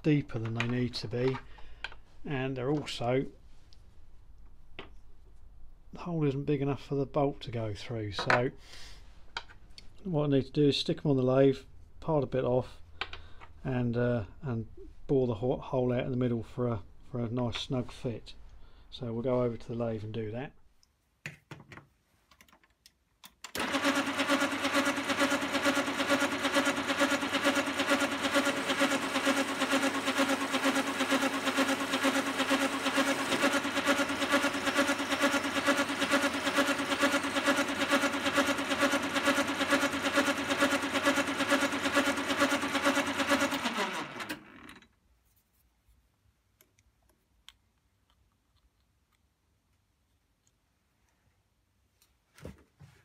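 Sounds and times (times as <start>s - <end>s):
lathe motor running: 23.6s - 44.8s.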